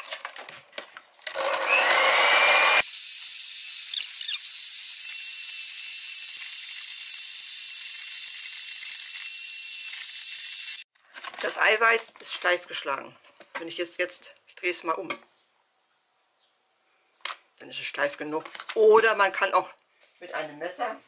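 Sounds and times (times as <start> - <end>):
electric hand mixer whining: 1.3 - 10.9.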